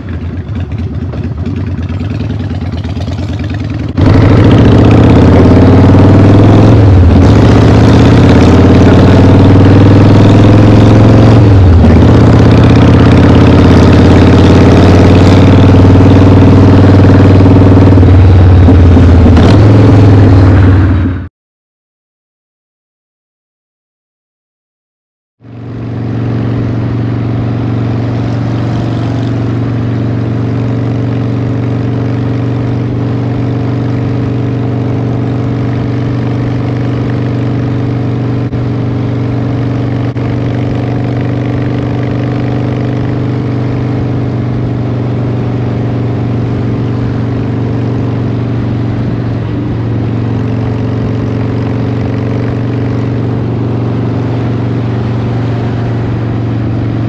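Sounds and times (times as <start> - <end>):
motorcycle engine cruising: 0.0 - 21.3, 25.4 - 57.0
wind and road noise: 0.0 - 21.3, 25.4 - 57.0.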